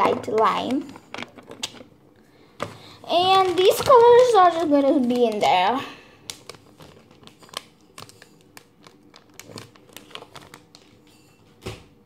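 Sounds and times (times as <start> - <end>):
plastic packet crinkling: 3.1 - 11.1.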